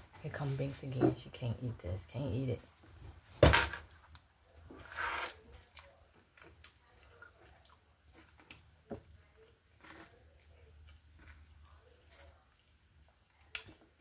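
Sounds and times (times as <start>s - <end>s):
person chewing food: 3.9s - 14.0s.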